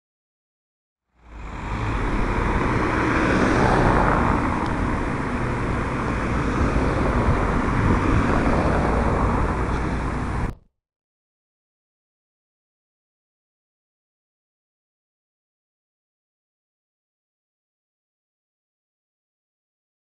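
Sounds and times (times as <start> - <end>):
cars driving past: 1.1 - 10.6
wind rumble on microphone: 1.5 - 10.6.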